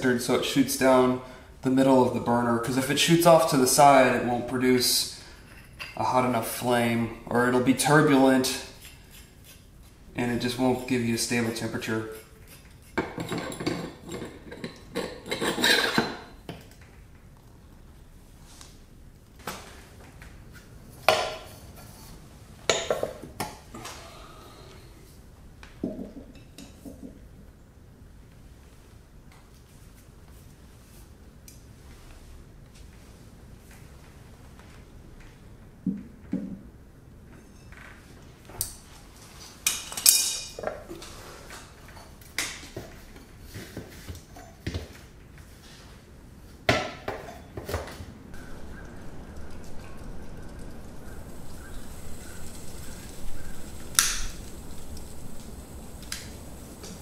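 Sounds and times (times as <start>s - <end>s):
metal tongs clanking on furnace: 39.7s - 40.6s.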